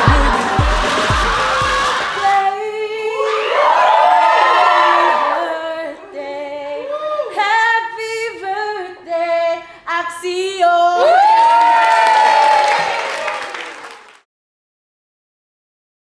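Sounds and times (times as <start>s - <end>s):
woman singing unaccompanied: 0.0s - 1.3s, 2.2s - 3.6s, 5.2s - 11.1s.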